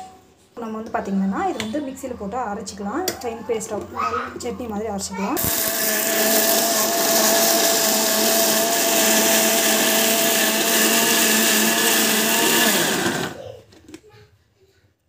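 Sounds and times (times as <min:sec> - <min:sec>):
mixer grinder motor whine: 0:05.4 - 0:13.4.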